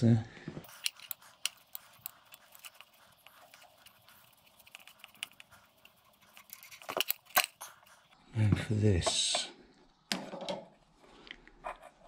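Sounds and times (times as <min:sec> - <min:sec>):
metal fittings clicking: 0:00.6 - 0:07.6.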